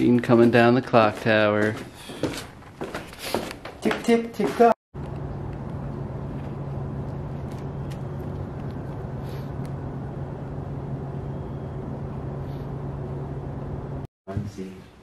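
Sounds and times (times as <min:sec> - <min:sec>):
low mechanical hum: 0:05.0 - 0:14.1
outdoor background rumble: 0:05.0 - 0:14.1.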